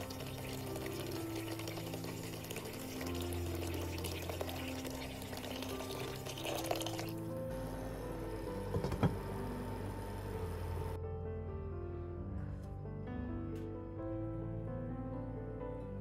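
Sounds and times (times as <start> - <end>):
kitchen tap running: 0.0 - 7.2
soft background music: 0.0 - 16.0.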